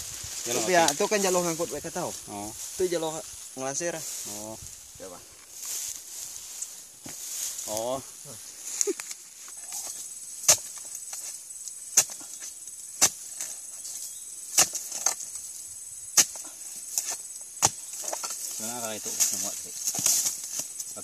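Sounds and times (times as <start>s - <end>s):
high buzz of insects: 0.0s - 21.0s
blade chopping palm stalks: 10.4s - 11.3s, 11.9s - 13.6s, 14.5s - 15.3s, 16.2s - 20.8s.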